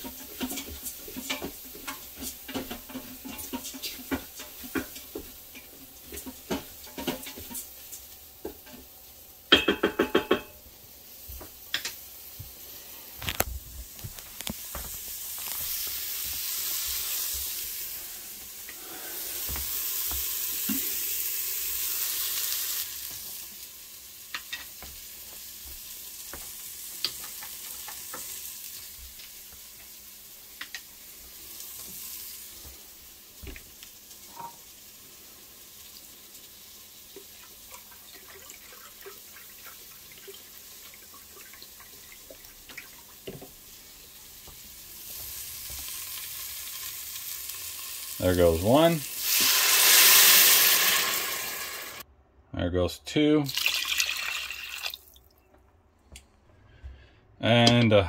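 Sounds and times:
rice sizzling in butter: 0:00.0 - 0:52.0.

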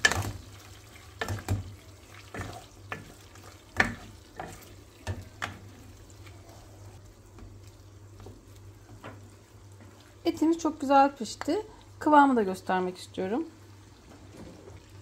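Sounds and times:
faint sizzle: 0:00.0 - 0:15.0.

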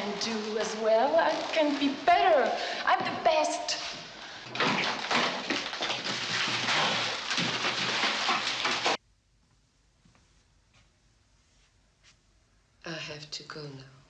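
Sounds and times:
packaging clattering: 0:04.5 - 0:09.0.

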